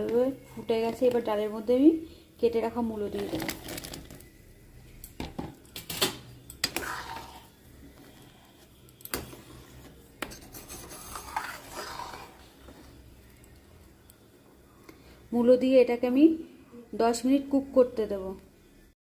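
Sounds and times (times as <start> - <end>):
metal spoon stirring in steel pot: 6.6 - 12.6
spoon clinking and scraping pot: 9.0 - 12.4.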